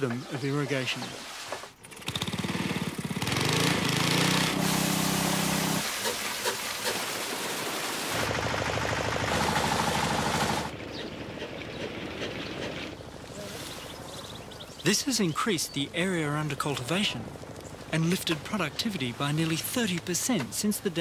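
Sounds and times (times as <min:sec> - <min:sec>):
water gushing from pipe: 0:04.0 - 0:08.5
pump engine chugging: 0:08.2 - 0:12.8.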